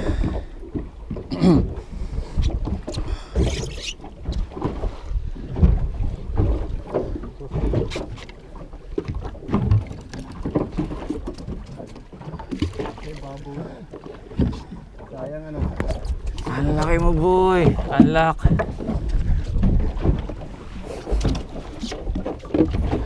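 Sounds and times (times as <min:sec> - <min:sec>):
wind buffeting microphone: 0:00.0 - 0:08.2, 0:13.6 - 0:23.0
water splashing against hull: 0:00.0 - 0:23.0.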